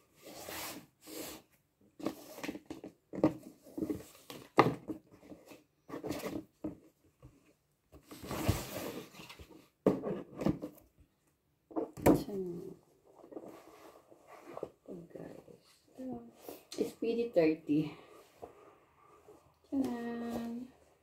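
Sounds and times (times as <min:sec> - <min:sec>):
cardboard box rustling: 0:08.0 - 0:10.8.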